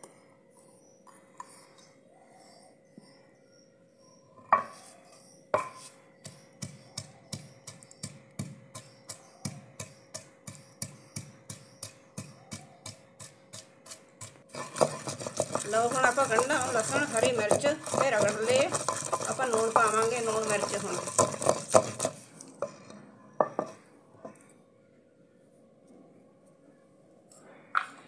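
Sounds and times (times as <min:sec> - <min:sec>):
pestle pounding in a bowl: 0:05.6 - 0:22.2.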